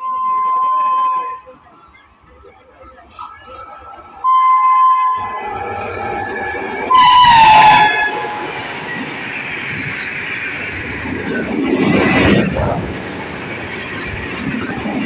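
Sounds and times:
train horn blasts: 0.0s - 1.5s, 4.2s - 5.8s, 6.8s - 8.8s
train rushing and rattling on rails: 0.0s - 15.0s.

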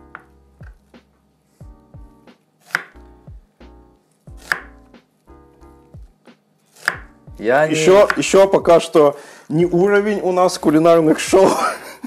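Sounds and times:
quiet background music: 0.0s - 12.0s
knife chopping onion on board: 2.6s - 4.9s, 6.7s - 8.5s.

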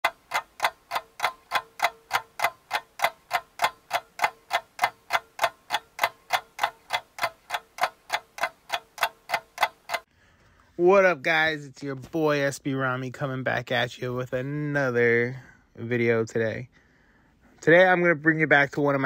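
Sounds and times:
rapid clock-like ticking: 0.0s - 10.1s.

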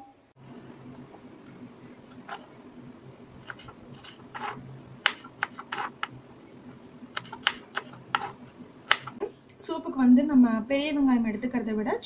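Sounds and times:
low steady hum: 0.0s - 12.0s
knife cutting on wooden board: 3.4s - 6.1s, 7.2s - 9.2s.

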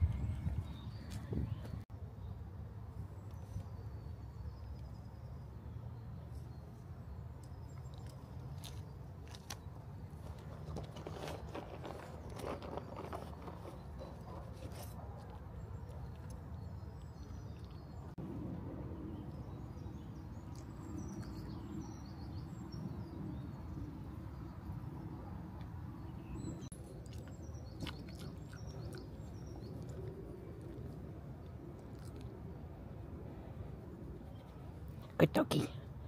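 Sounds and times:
low outdoor rumble: 0.0s - 36.0s
small birds chirping: 19.2s - 32.4s.

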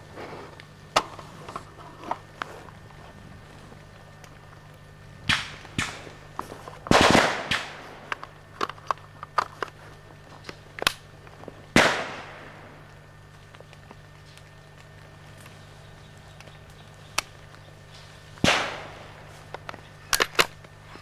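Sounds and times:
rifle gunshots: 5.2s - 6.1s, 6.9s - 8.2s, 11.7s - 12.8s, 18.4s - 19.3s.

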